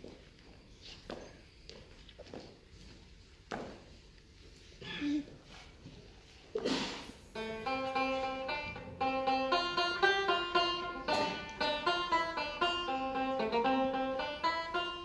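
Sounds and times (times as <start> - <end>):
banjo playing quick tune: 7.3 - 15.0.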